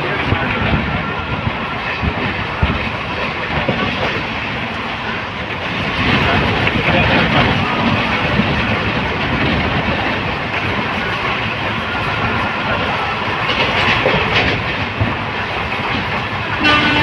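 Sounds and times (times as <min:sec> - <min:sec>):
train rumble: 0:00.0 - 0:17.0
train wheels clattering over rails: 0:00.0 - 0:17.0.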